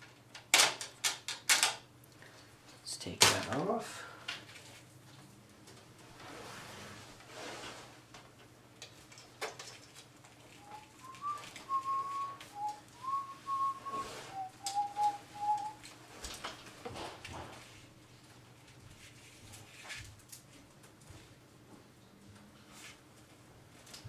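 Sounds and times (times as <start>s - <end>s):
person whistling a tune: 10.6s - 15.8s.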